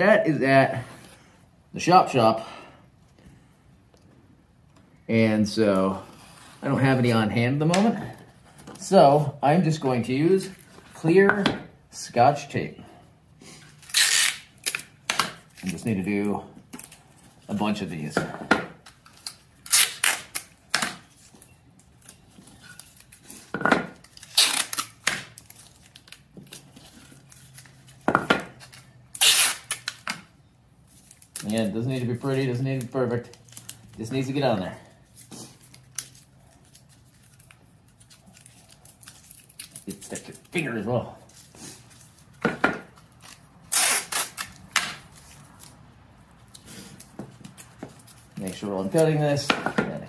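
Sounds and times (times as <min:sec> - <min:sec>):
tape ripping: 0:13.8 - 0:17.2, 0:18.8 - 0:30.3, 0:31.0 - 0:34.5, 0:35.1 - 0:45.8, 0:46.4 - 0:49.4.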